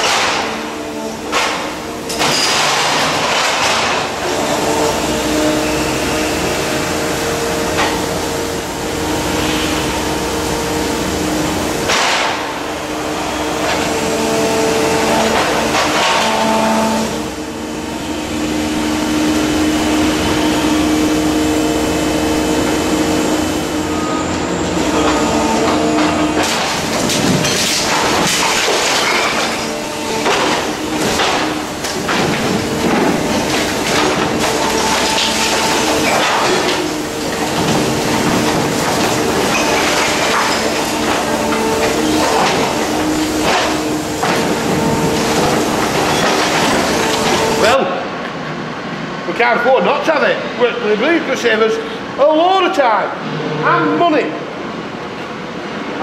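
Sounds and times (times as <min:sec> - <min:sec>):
hydraulic machine whine: 0:00.0 - 0:49.4
brick and rubble crashing: 0:01.3 - 0:04.4, 0:26.4 - 0:47.8.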